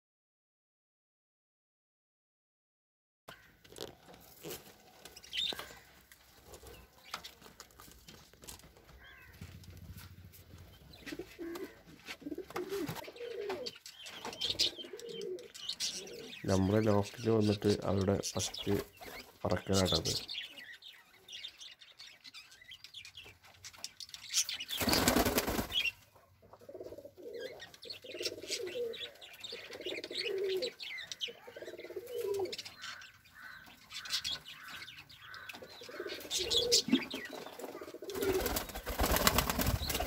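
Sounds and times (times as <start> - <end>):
pigeons cooing: 10.9 - 17.0, 26.5 - 32.8, 33.4 - 40.0
wing flapping: 24.8 - 25.9, 37.7 - 40.0.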